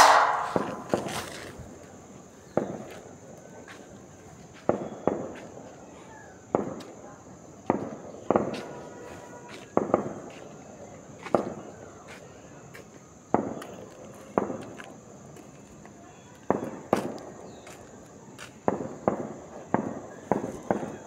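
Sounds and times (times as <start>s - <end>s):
sharp echoing bangs: 0.0s - 1.3s.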